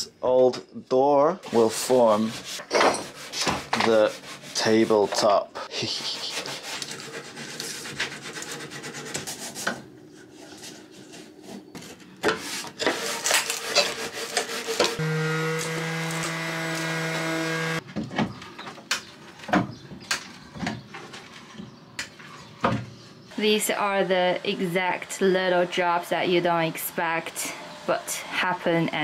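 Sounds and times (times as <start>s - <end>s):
rubbing and scraping on wood: 1.4s - 23.8s
power tool motor running: 14.9s - 17.8s.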